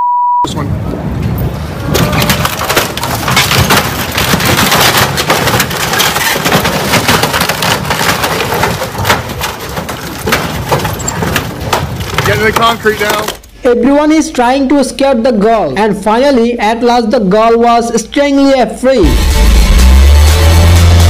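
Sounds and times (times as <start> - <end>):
wood cracking and splintering: 1.8 - 13.5.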